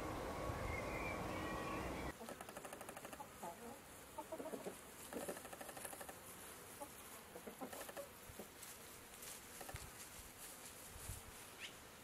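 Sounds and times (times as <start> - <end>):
chickens clucking softly: 2.2 - 5.4, 6.8 - 8.5.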